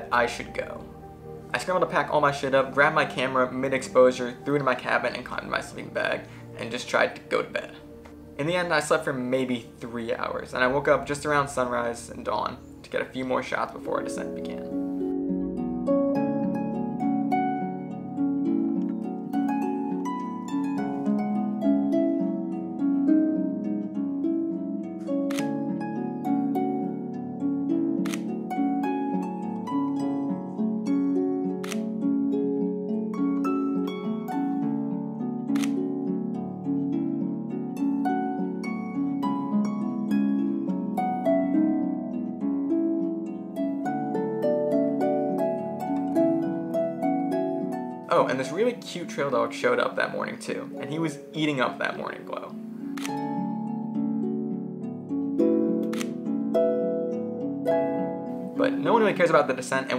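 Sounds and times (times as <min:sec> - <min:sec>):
harp music: 0:00.0 - 0:59.9.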